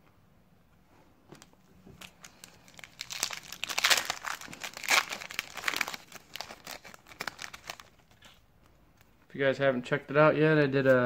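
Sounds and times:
foil pack crinkling and tearing: 0:01.4 - 0:08.4.

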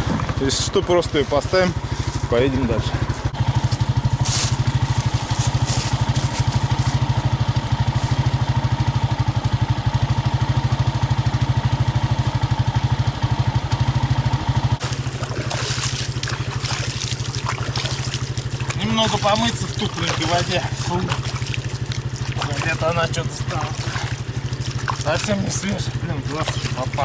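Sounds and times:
atv engine running: 0:00.0 - 0:27.0
water splashing: 0:14.8 - 0:27.0.

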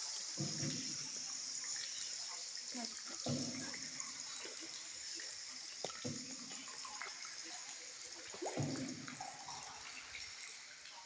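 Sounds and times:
water swishing under boat: 0:03.0 - 0:07.3, 0:08.2 - 0:10.4.

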